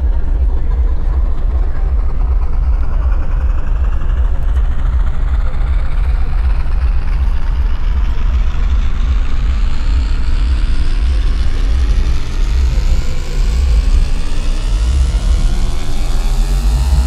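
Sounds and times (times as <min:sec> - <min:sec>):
deep low drone: 0:00.0 - 0:17.0
thin rising tone: 0:08.9 - 0:17.0.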